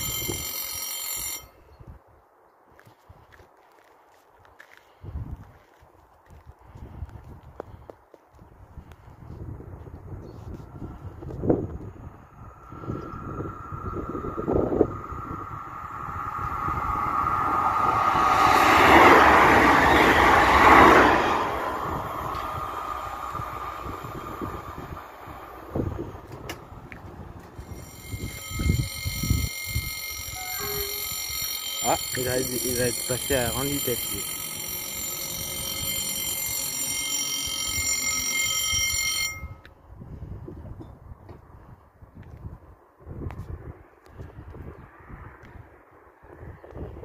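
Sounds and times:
electric train passing: 0.0s - 1.5s, 11.4s - 39.6s
level crossing warning bell: 0.0s - 1.8s, 12.5s - 26.3s, 27.4s - 39.7s.

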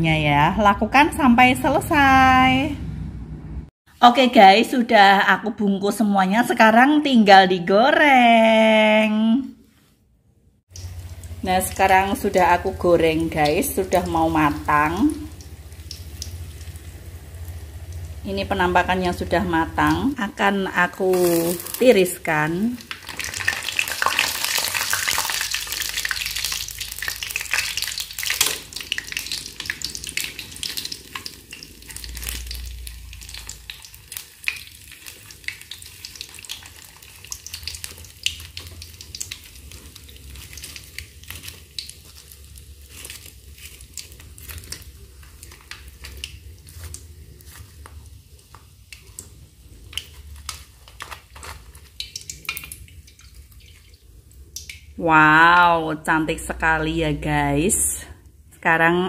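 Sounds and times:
hot oil sizzling and crackling: 10.7s - 55.6s.

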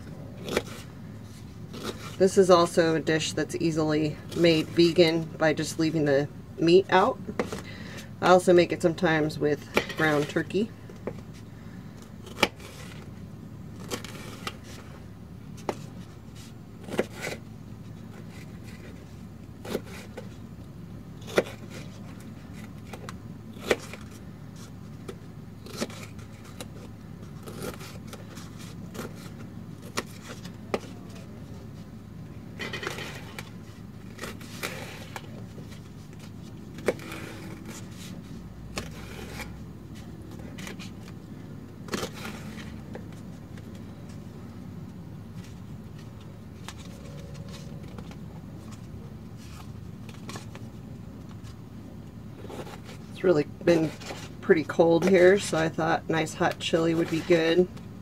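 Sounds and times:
steady low hum: 0.0s - 58.0s.

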